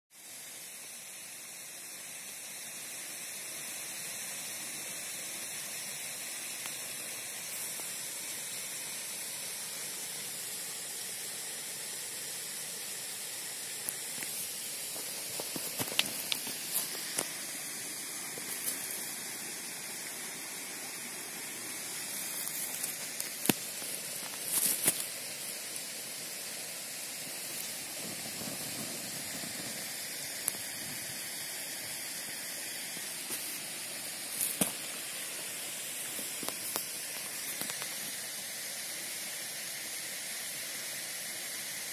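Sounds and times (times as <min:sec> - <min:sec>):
stove hissing: 0:00.1 - 0:41.9
small ticks and clicks: 0:06.5 - 0:08.0, 0:13.8 - 0:17.5, 0:22.0 - 0:25.6, 0:27.4 - 0:30.9, 0:36.0 - 0:38.2.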